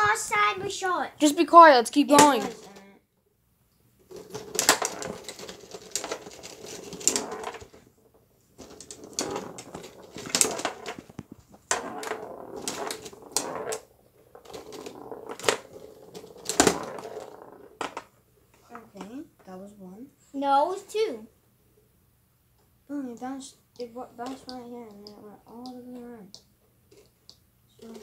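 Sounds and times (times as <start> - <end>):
clattering rattle: 4.1 - 7.8, 8.6 - 18.1
foosball ball clacks: 4.1 - 7.8, 8.6 - 18.2.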